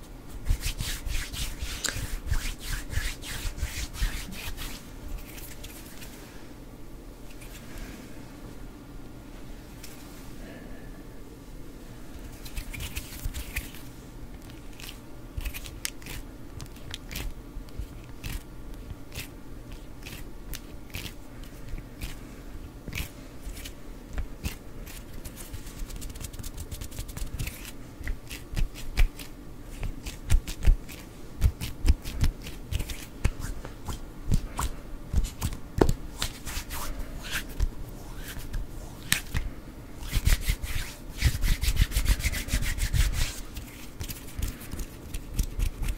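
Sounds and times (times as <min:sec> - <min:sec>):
palms rubbing together: 0:00.4 - 0:06.2, 0:12.4 - 0:18.5, 0:22.9 - 0:39.4, 0:40.0 - 0:45.9.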